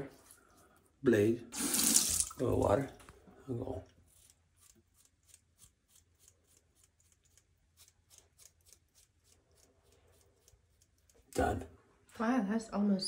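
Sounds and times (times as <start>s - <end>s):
razor scraping stubble: 3.5s - 11.7s.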